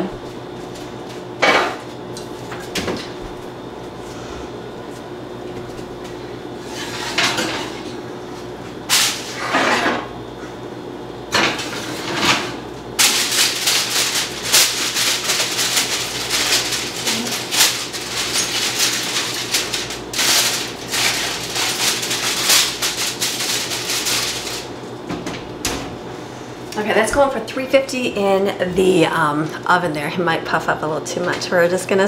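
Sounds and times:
aluminium foil crinkling: 13.0s - 24.8s.

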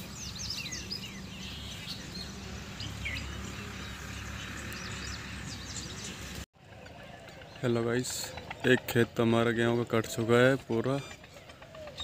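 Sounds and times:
small birds chirping: 0.0s - 6.4s.

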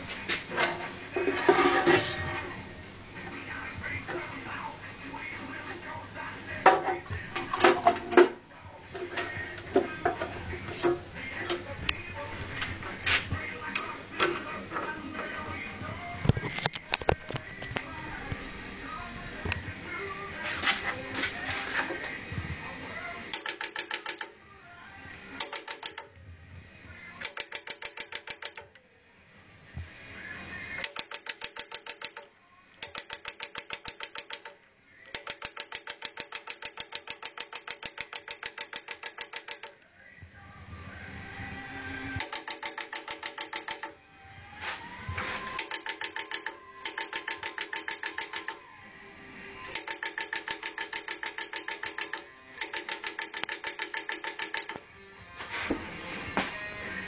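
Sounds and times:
rapid mechanical clicking: 23.3s - 24.3s, 25.4s - 26.1s, 27.2s - 28.7s, 30.8s - 39.8s, 42.2s - 44.0s, 45.6s - 48.6s, 49.7s - 54.8s.

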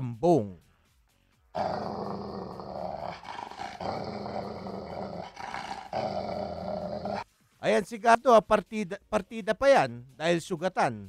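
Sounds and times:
recorded dog growling: 1.6s - 7.2s.

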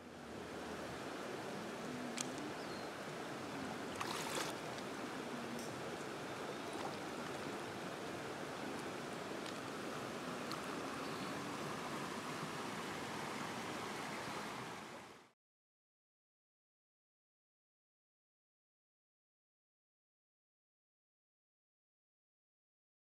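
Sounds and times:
river flowing over rocks: 0.0s - 15.3s
splashes from wading: 3.9s - 4.9s, 6.5s - 7.7s.

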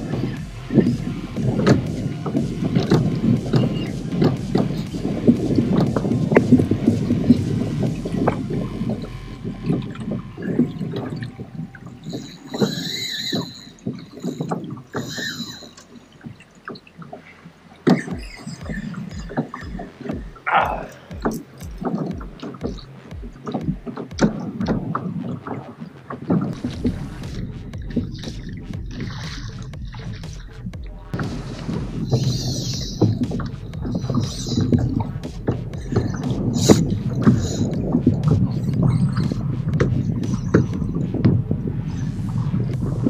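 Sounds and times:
gear knocks and clicks: 0.0s - 43.0s
water slapping kayak hull: 0.0s - 43.0s
high rising squeals: 8.2s - 21.6s.

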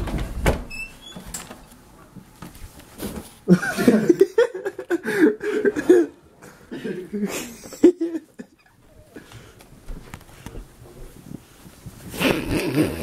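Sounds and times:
person suppressed giggling: 3.5s - 9.3s.

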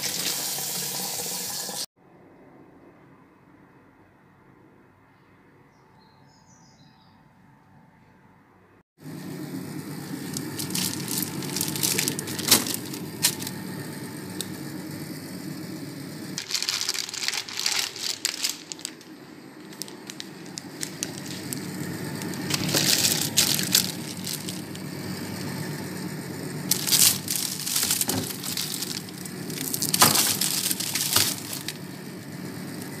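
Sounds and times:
plastic bags crinkling: 10.0s - 14.6s, 16.4s - 25.6s, 26.5s - 33.0s.

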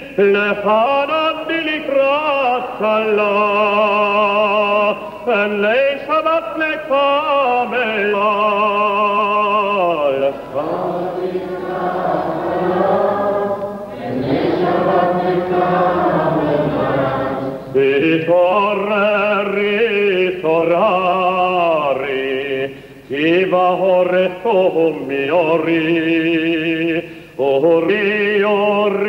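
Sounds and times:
several voices singing together: 10.2s - 18.2s.

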